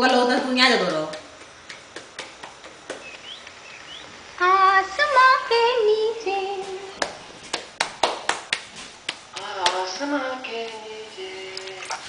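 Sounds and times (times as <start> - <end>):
woman singing in a song: 4.4 - 7.0, 9.4 - 12.0.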